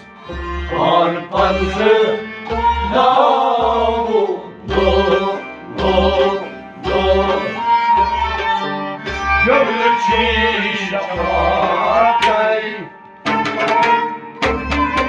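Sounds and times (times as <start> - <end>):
harmonium: 0.0 - 15.0
men singing folk song: 0.4 - 8.6, 9.4 - 12.9
hand drum beating: 13.2 - 15.0.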